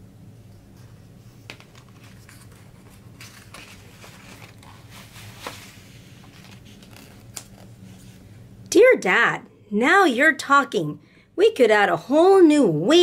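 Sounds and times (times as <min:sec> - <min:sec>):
low steady hum: 0:00.0 - 0:13.0
book page turning: 0:01.4 - 0:08.2.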